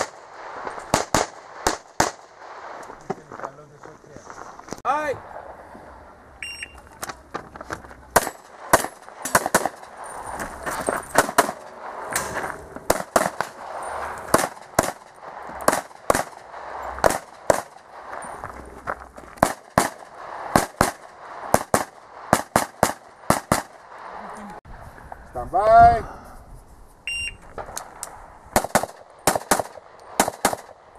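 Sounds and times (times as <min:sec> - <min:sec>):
rapid handgun shots: 0:00.0 - 0:02.4, 0:08.2 - 0:10.1, 0:11.2 - 0:12.0, 0:12.9 - 0:18.1, 0:19.4 - 0:23.8, 0:28.6 - 0:30.8.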